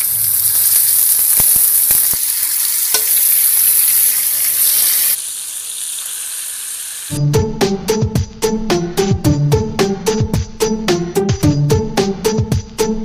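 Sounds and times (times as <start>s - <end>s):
fish sizzling in hot oil: 0.0s - 7.2s.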